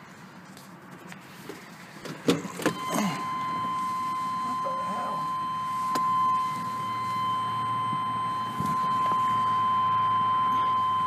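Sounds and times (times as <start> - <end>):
high-pitched electronic beep tone: 2.7 - 11.0.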